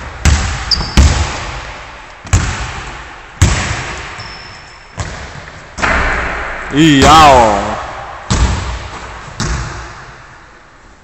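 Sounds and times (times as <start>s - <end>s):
basketball bouncing on wooden floor: 0.0s - 1.6s, 2.2s - 2.8s, 5.0s - 5.6s, 8.3s - 10.1s.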